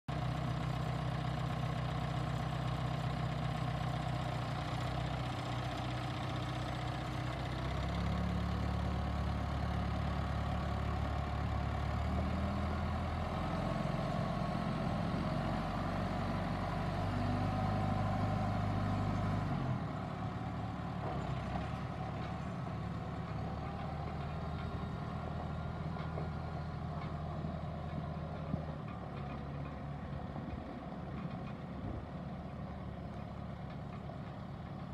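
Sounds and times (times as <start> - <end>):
tractor diesel engine running: 0.1 - 34.9.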